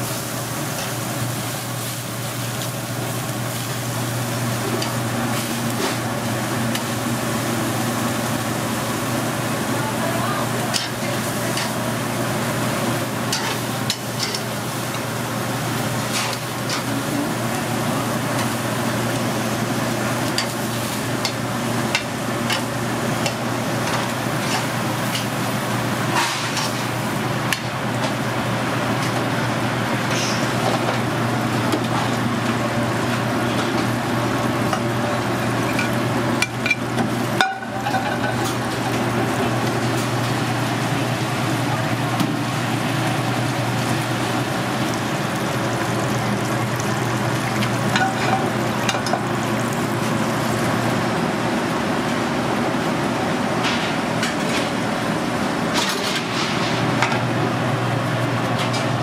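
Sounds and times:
steaks sizzling and crackling: 0:00.0 - 0:09.2.

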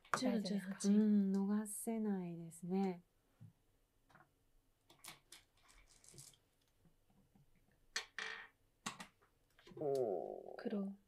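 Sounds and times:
stones clicking in wooden bowl: 0:04.9 - 0:06.4.

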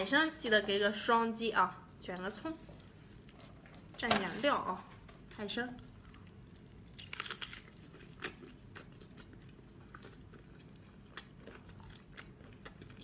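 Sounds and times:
wet chewing: 0:05.8 - 0:13.0.

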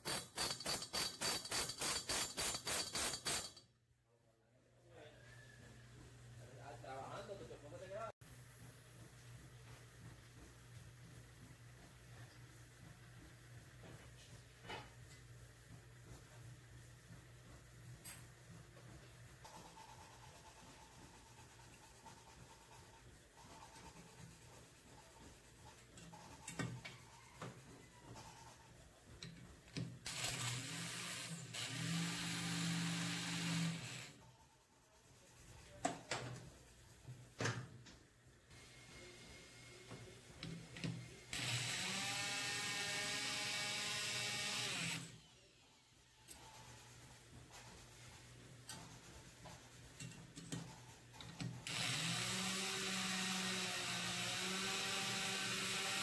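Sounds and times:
valve seat grinder whining: 0:30.1 - 0:34.2, 0:41.3 - 0:45.2, 0:51.7 - 0:56.0.

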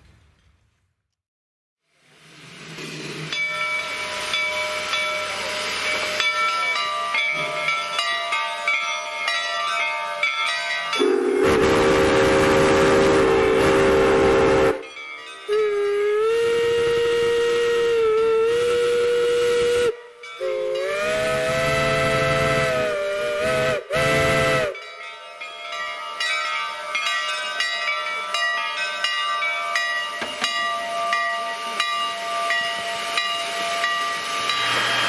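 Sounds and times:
steam hiss: 0:01.9 - 0:08.2, 0:11.0 - 0:24.8, 0:29.7 - 0:35.0
steam locomotive whistle blasts: 0:03.7 - 0:07.8, 0:10.9 - 0:14.9, 0:15.5 - 0:24.9, 0:31.0 - 0:35.0.

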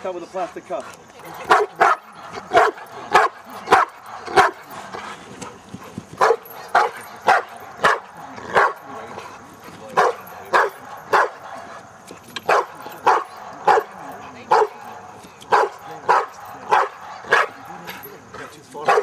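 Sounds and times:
dog barking: 0:01.4 - 0:05.0, 0:06.2 - 0:09.0, 0:09.9 - 0:11.8, 0:12.4 - 0:17.7, 0:18.8 - 0:19.0.

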